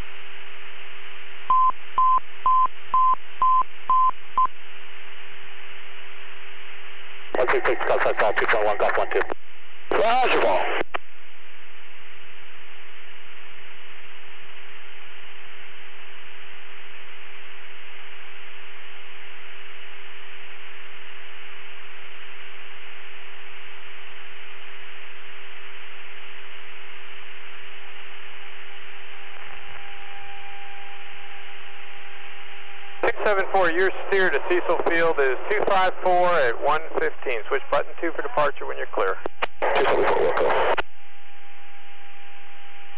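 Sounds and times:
radio static hiss: 0.0 - 42.3
constant low hum tone: 0.0 - 42.9.

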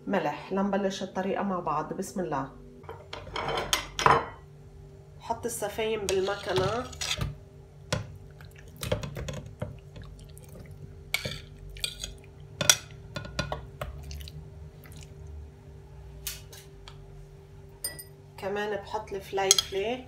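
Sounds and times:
faint steady hum: 0.0 - 20.0
metal utensil scraping on china: 6.1 - 7.3
wet squishes of meat: 8.1 - 8.9, 9.8 - 12.6, 13.9 - 15.4.

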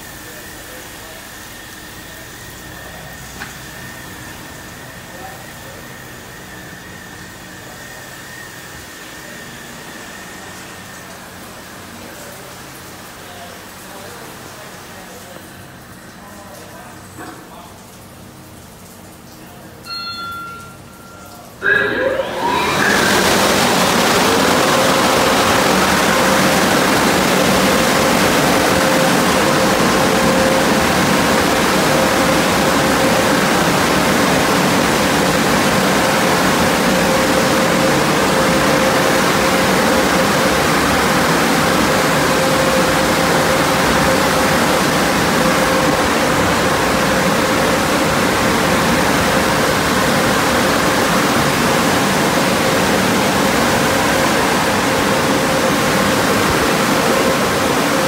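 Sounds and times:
fan motors whining: 0.0 - 13.2, 19.9 - 58.0
rush of air from blowers: 21.6 - 58.0.

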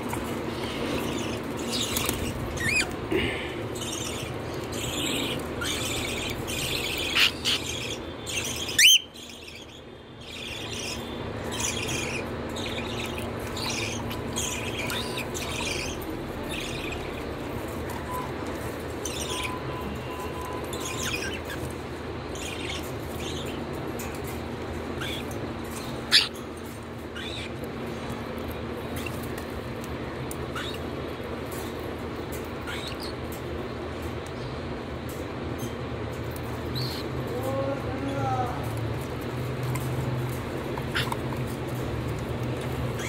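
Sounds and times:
cockatiels chirping: 0.6 - 3.0, 3.8 - 23.7, 25.0 - 26.4, 27.2 - 27.6, 30.4 - 30.9, 32.6 - 33.2, 40.8 - 41.9, 42.8 - 43.0.

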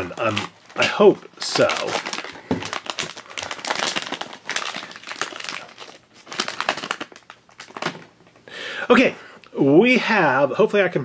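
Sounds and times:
foil pouch crinkling: 0.0 - 8.2.

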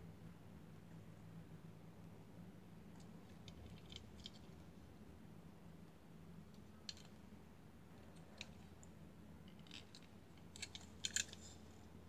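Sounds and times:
toy car clicking in fingers: 9.7 - 11.5.

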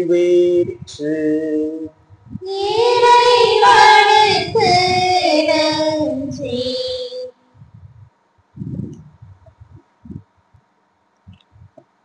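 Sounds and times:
congregation singing in unison: 2.5 - 7.0.

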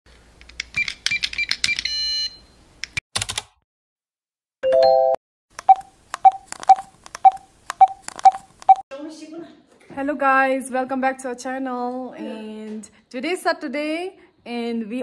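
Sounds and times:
quick clicks and beeps: 5.6 - 8.8
typing-like clicks with beeps: 5.6 - 8.8.

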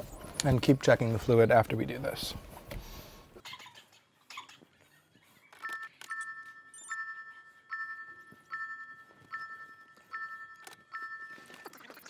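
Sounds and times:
dashboard warning chime dinging: 5.6 - 11.6.

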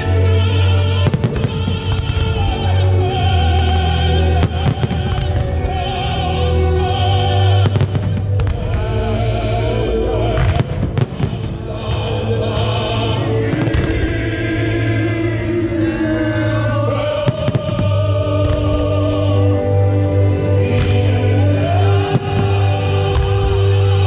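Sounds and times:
choral music: 0.0 - 24.0
fireworks bursting with bangs: 1.0 - 2.8, 4.3 - 6.0, 7.3 - 9.0, 10.3 - 12.8, 13.5 - 14.5, 17.2 - 19.0, 20.7 - 24.0.

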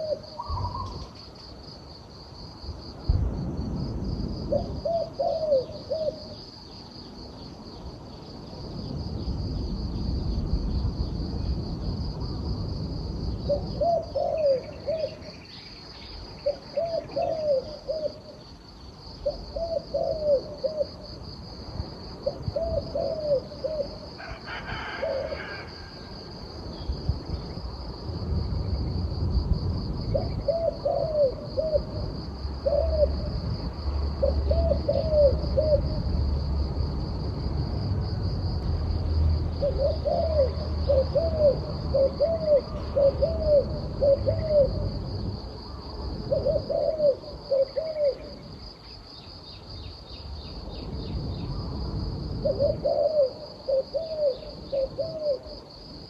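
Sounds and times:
dove cooing: 0.0 - 1.1, 4.5 - 6.4, 13.5 - 15.4, 16.4 - 18.4, 19.2 - 21.0, 22.2 - 26.0, 30.1 - 33.4, 34.2 - 36.0, 39.6 - 45.1, 45.7 - 48.5, 52.4 - 55.7.

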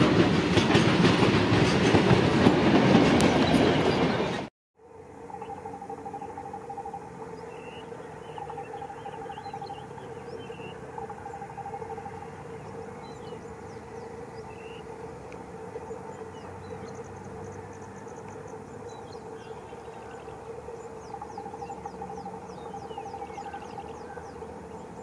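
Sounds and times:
electric locomotive hum: 0.0 - 25.0
small birds chirping: 5.3 - 25.0.

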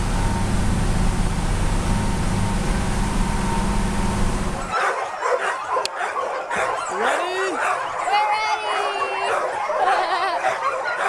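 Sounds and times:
loud rumbling noise: 0.0 - 4.8
dogs yipping and barking: 3.4 - 11.0.

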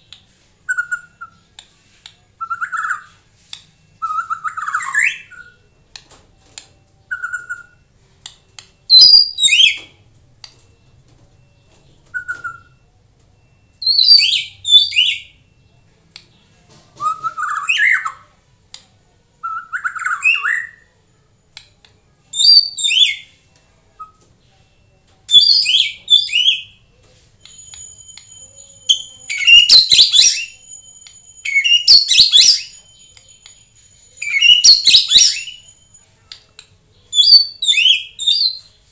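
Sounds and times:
thin steady high tone: 0.0 - 38.9
bird singing whistles and chatter: 0.7 - 1.5, 7.0 - 7.8, 8.9 - 9.9, 11.5 - 12.8, 13.8 - 15.4, 17.0 - 18.3, 19.4 - 20.9, 22.3 - 24.2, 25.3 - 26.8, 27.5 - 36.0, 37.1 - 38.8.

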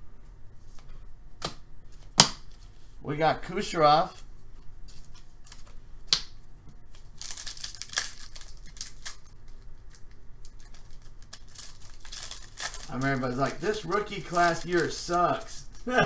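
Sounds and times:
foil wrapper crinkling and tearing: 6.9 - 15.9.

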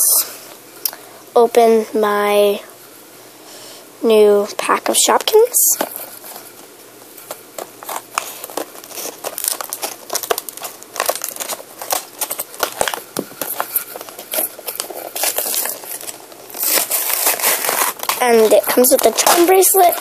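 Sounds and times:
plastic packaging crinkling: 5.0 - 20.0.

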